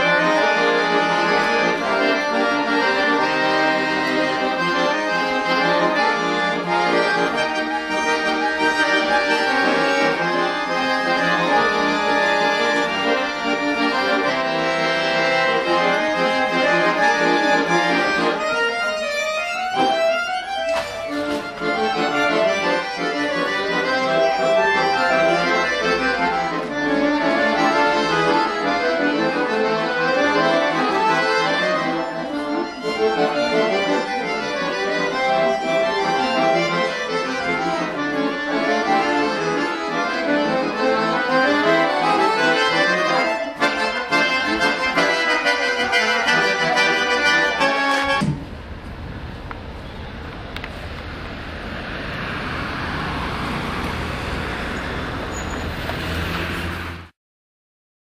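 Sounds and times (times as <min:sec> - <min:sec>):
accordion playing: 0:00.0 - 0:57.1
click: 0:50.5 - 0:50.8.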